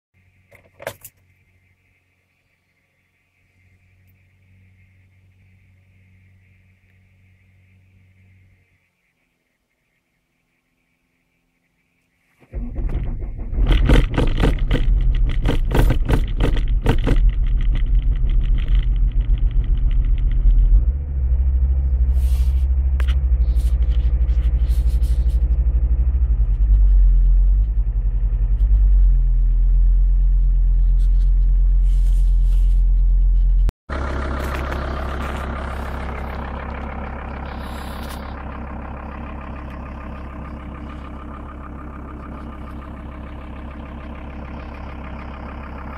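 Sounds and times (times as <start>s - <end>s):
diesel engine starting and idling: 12.4s - 45.9s.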